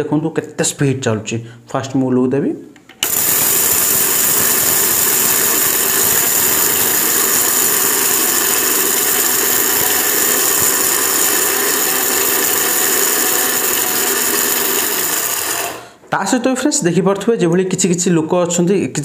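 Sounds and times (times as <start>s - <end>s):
mixer grinder motor whining: 3.0s - 16.0s.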